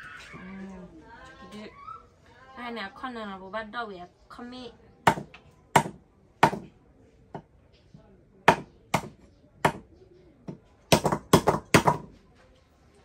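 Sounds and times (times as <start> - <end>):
cleaver chopping on wooden block: 5.1 - 6.7, 8.5 - 9.9, 10.5 - 12.1.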